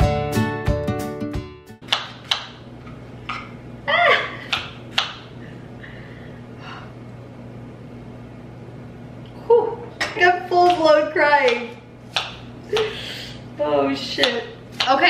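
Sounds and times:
low steady hum: 1.8 - 15.0
knife chopping on cutting board: 4.5 - 5.3, 11.5 - 12.9, 14.2 - 15.0.

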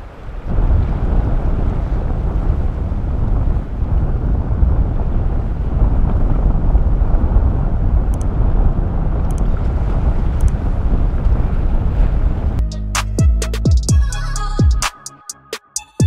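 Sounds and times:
wind buffeting microphone: 0.0 - 12.6.

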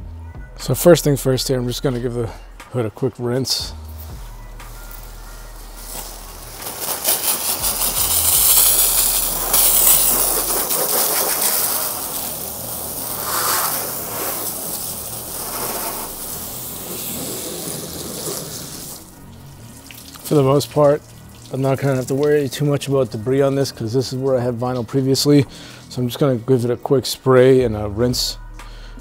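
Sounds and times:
hose nozzle spraying water: 3.9 - 24.9
water spattering on metal: 4.0 - 25.3.

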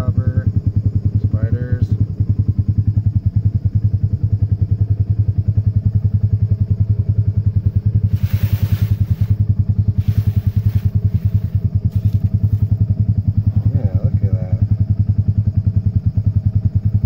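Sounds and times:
engine idling with low pulsing: 0.0 - 17.0
hissing rustles: 7.6 - 12.9.

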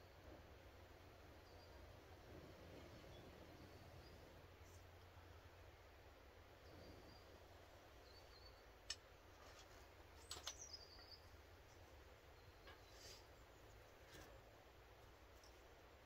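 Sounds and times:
faint bird chirps: 1.0 - 5.6, 6.4 - 8.9, 10.1 - 14.3.

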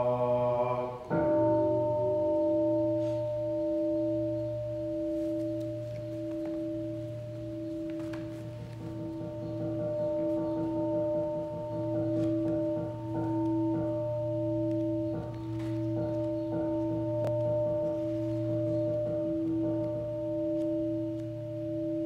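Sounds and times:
man chanting in monotone: 0.0 - 1.7.

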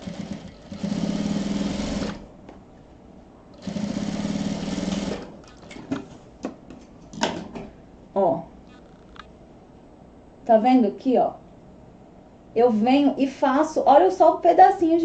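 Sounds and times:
sewing machine stitching: 0.0 - 2.2, 3.6 - 5.3.

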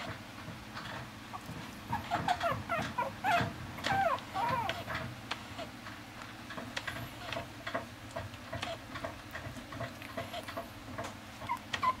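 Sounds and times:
puppy whining: 1.3 - 5.7, 11.4 - 12.0.

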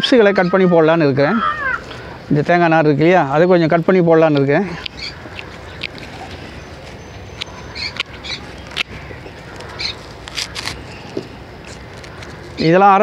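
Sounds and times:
bird chirps: 4.3 - 12.8
snips cutting dry fibre: 9.5 - 12.3.

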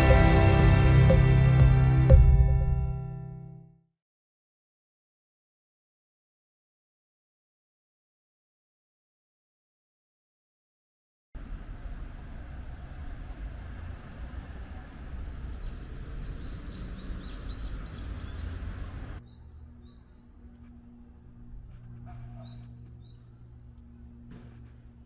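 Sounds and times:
road noise: 0.0 - 2.6, 11.4 - 20.2
small birds chirping: 14.8 - 20.6, 22.1 - 23.3.

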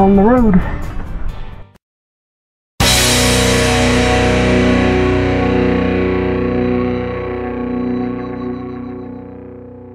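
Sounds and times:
distorted electric guitar chord: 2.8 - 9.9.

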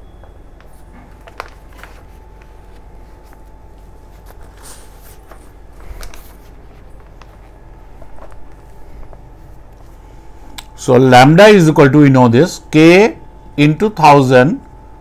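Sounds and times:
faint steady hum: 0.0 - 15.0
paper rustling: 0.6 - 10.1.

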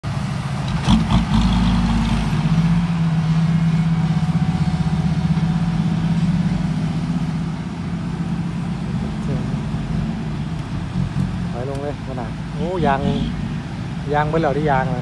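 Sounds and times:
diesel truck engine throbbing: 0.0 - 15.0.

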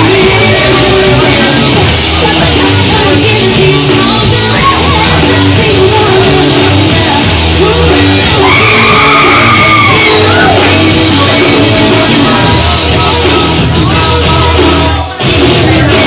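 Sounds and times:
loud rock music with singing: 0.0 - 16.0
high voice long held cry: 8.3 - 10.8.

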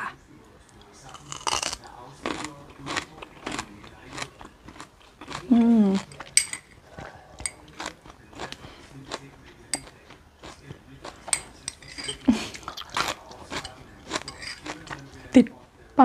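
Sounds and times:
crunchy chewing: 0.8 - 15.3
spoon clinking on ceramic bowl: 6.0 - 6.8, 7.4 - 7.7, 11.2 - 12.3, 13.5 - 14.8.

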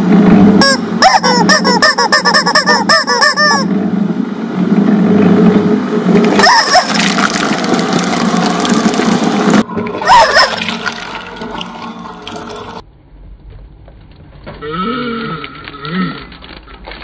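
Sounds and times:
rubber squeeze toys squawking: 0.6 - 3.7, 6.3 - 7.4
shredder humming: 3.8 - 12.8.

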